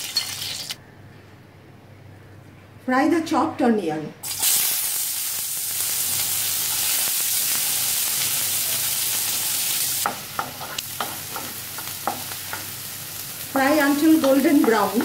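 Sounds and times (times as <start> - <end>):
onions sizzling in hot oil: 0.0 - 0.8, 4.2 - 15.0.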